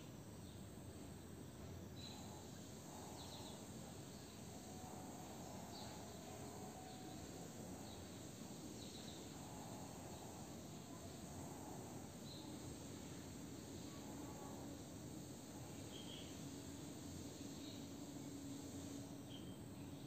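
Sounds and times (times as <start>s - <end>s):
background hiss: 0.0s - 20.0s.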